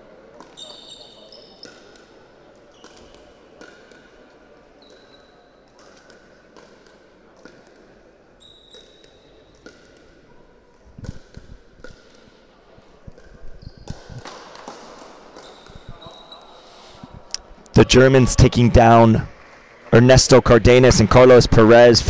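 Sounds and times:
sneakers squeaking on floor: 0.4s - 7.7s, 8.3s - 12.4s, 13.0s - 17.2s.

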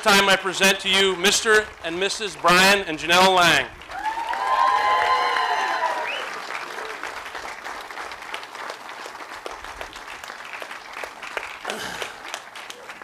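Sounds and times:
crowd clapping: 0.0s - 13.0s
person cheering: 3.9s - 7.0s.

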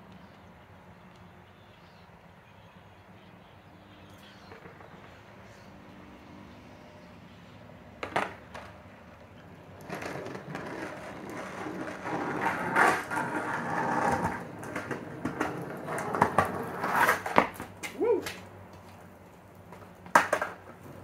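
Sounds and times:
skateboard wheels rolling on concrete: 0.0s - 21.0s
skateboard clacks: 4.2s - 5.3s, 8.0s - 21.0s.

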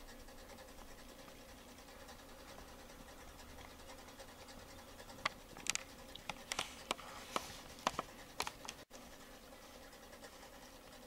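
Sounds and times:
faint steady hum: 0.0s - 11.0s
small scratches and clicks: 0.0s - 11.0s.

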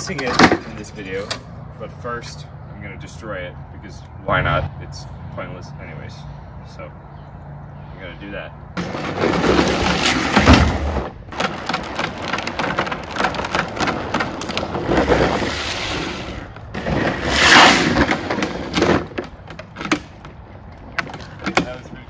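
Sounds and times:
hard wheels skidding on asphalt: 8.8s - 20.4s.

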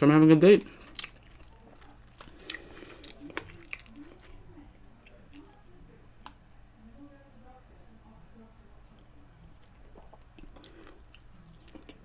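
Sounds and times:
chewing wet mouth sounds: 0.6s - 5.7s, 9.4s - 12.0s.

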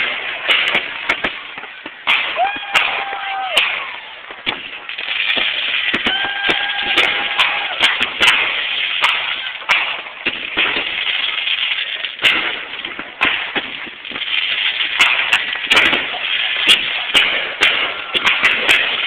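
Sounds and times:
fireworks crackling hiss: 0.0s - 19.0s
fireworks shells bursting: 0.0s - 19.0s.

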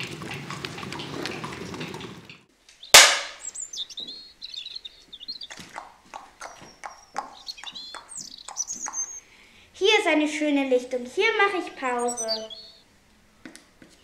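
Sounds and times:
horse hooves clip-clop: 0.0s - 2.5s, 5.0s - 9.2s, 13.4s - 14.0s
songbirds chirping: 0.0s - 14.0s
sharp loud hit: 3.0s - 3.4s.

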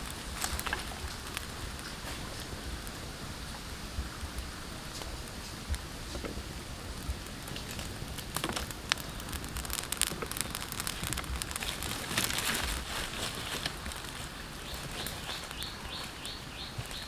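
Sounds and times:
wood fire crackling: 0.0s - 17.0s.

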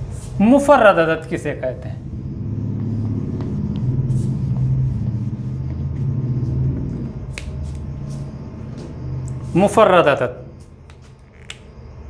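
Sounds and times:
low wavering rumble: 1.5s - 9.6s.

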